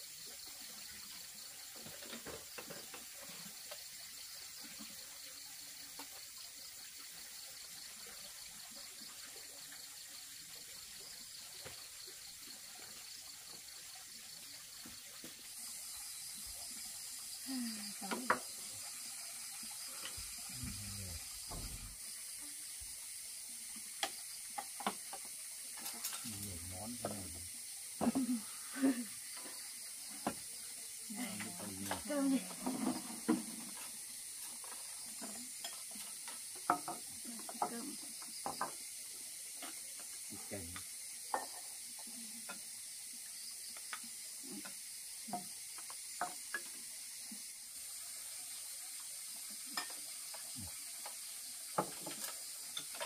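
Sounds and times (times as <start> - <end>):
steady hiss: 0.0 - 53.0
low voice murmurs: 20.5 - 21.2
dishes clinking on wooden table: 36.6 - 37.0, 41.3 - 41.6.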